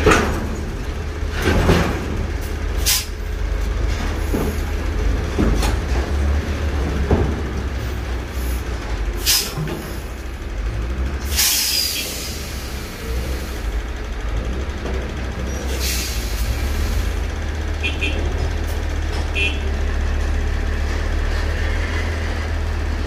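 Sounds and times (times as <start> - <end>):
diesel engine rumbling: 0.0 - 23.0
sharp air hisses: 11.3 - 13.7, 15.7 - 17.1.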